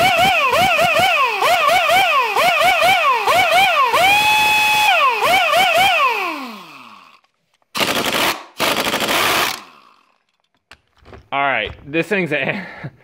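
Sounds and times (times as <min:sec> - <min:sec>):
air impact wrench whining: 0:00.0 - 0:10.3.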